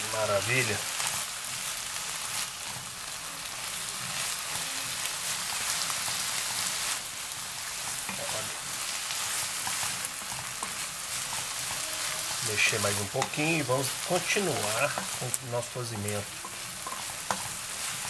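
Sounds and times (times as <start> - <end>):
meat sizzling in a frying pan: 0.0 - 18.0
wooden spoon scraping mince: 7.7 - 18.0.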